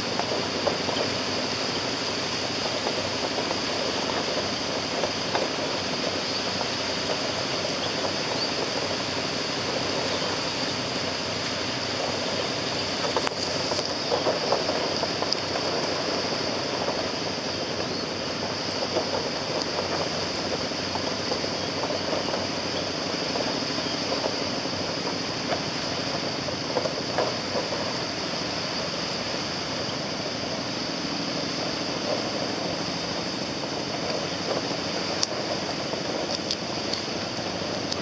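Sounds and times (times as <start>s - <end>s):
small waves breaking on rocks: 0.0s - 30.6s
constant high whine: 0.0s - 38.0s
wind on microphone: 11.8s - 38.0s.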